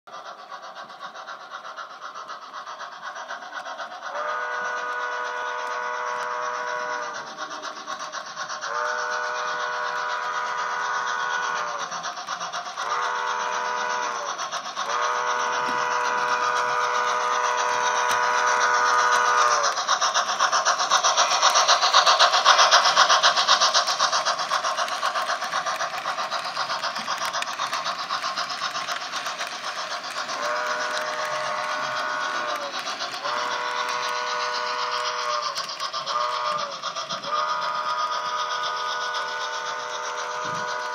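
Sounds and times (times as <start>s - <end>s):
fine rapid clicking: 0.1s - 40.9s
model train rolling noise: 0.1s - 40.9s.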